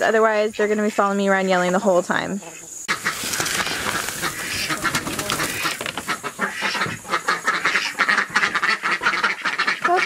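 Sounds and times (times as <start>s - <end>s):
ducks quacking: 2.4s - 10.0s.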